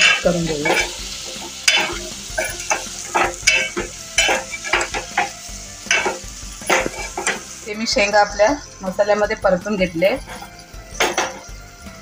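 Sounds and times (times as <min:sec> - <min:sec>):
ladle scraping metal pot: 0:00.0 - 0:07.6
masala sizzling: 0:00.0 - 0:12.0.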